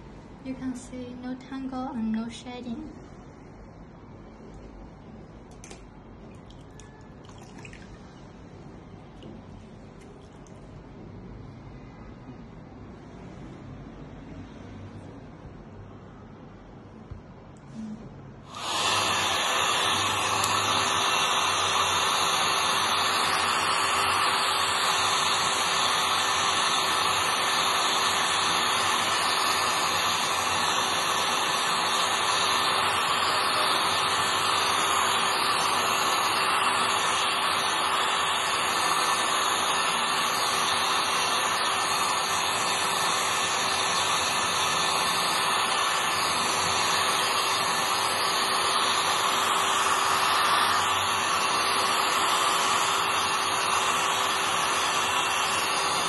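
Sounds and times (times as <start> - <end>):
hair dryer blowing: 18.5 - 56.0.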